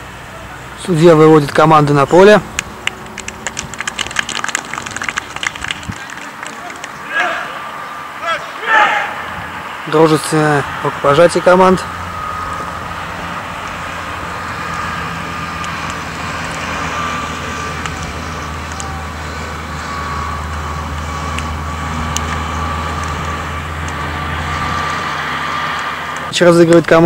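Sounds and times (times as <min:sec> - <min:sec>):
faint high whine: 0:00.0 - 0:27.0.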